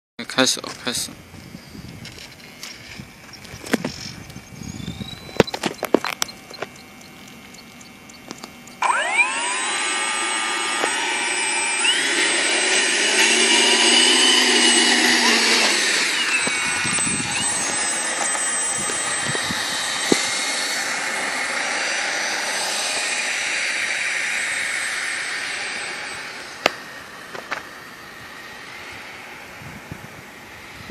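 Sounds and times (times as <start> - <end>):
electric ducted fan whining: 0.2 - 30.9.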